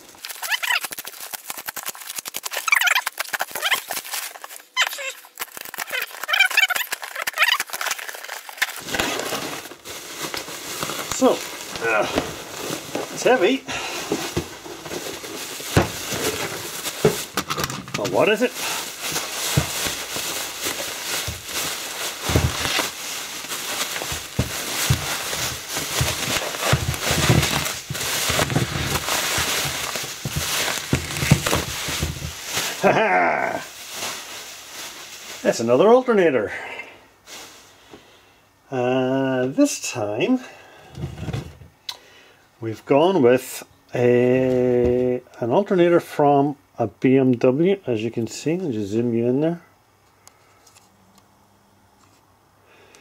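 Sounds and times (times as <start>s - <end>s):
packing tape ripping: 0.0s - 13.5s, 14.2s - 34.3s
plastic bag crinkling: 0.0s - 36.1s.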